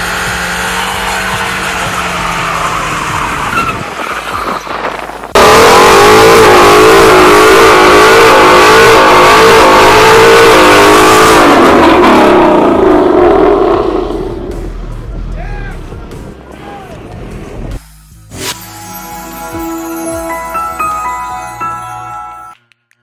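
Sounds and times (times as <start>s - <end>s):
car engine revving: 0.0s - 16.3s.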